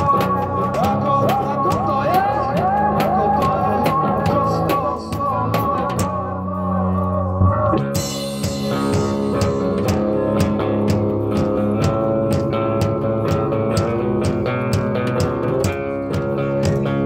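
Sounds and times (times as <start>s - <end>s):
drum kit beat: 0.0s - 6.4s, 7.4s - 17.0s
electric guitar low notes: 0.0s - 17.0s.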